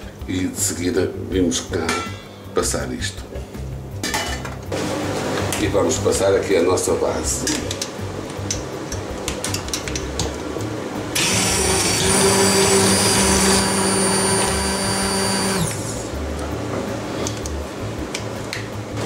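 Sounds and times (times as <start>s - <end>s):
immersion blender running: 11.2s - 16.1s.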